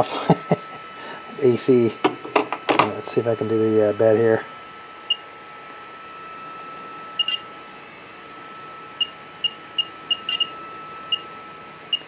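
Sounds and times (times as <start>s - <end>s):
touchscreen key-press beeps: 7.2s - 7.4s.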